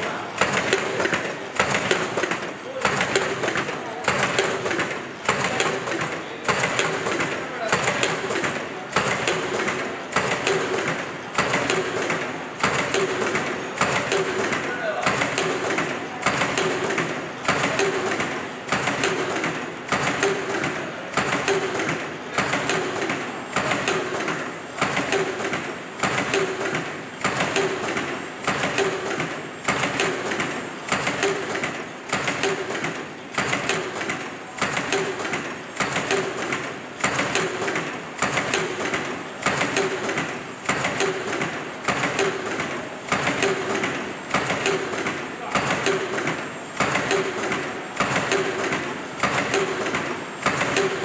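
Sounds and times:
machines clattering: 21.2 - 51.0
regular clicks: 22.5 - 51.0.

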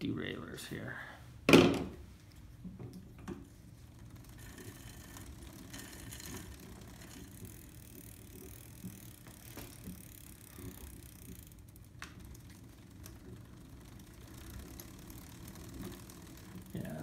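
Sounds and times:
bicycle chain running: 3.6 - 17.0.

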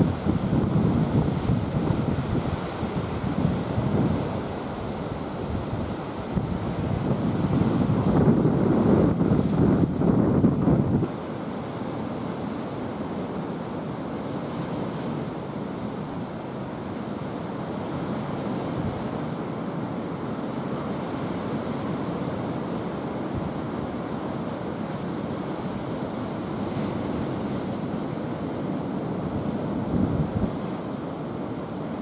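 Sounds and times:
wind buffeting microphone: 0.0 - 11.1, 28.4 - 30.8.

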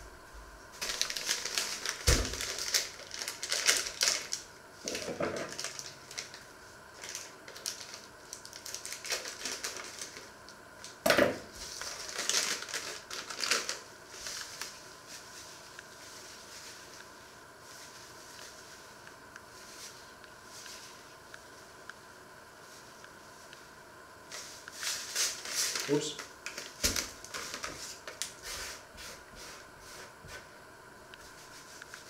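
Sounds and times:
plastic packet crinkling: 0.8 - 6.4, 7.0 - 11.0, 11.7 - 14.8, 25.1 - 28.4.

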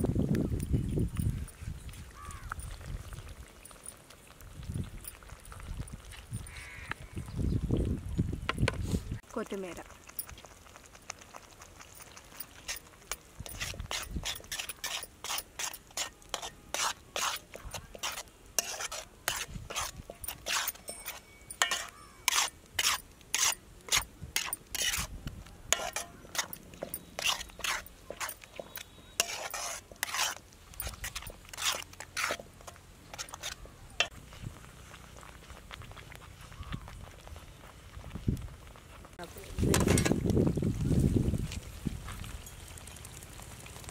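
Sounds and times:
spatula scraping an iron pan: 12.6 - 25.1, 25.7 - 34.1.

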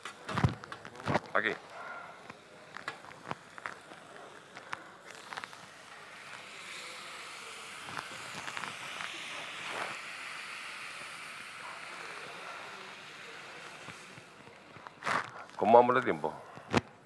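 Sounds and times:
water sizzling in hot pan: 2.4 - 14.4.

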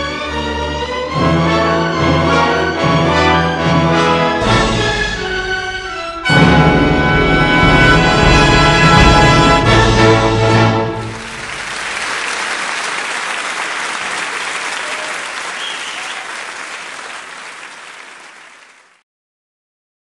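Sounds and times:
music: 0.0 - 11.6
audience applause: 10.8 - 19.0.

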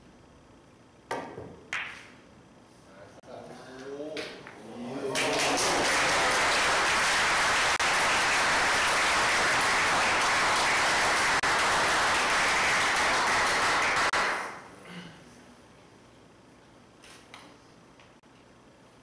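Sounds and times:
audience applauding: 5.0 - 14.6.

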